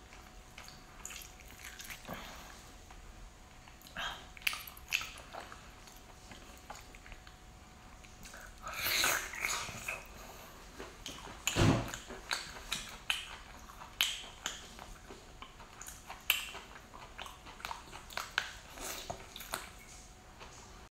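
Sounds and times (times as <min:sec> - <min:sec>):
chewing and biting: 0:00.0 - 0:03.0, 0:03.6 - 0:20.6.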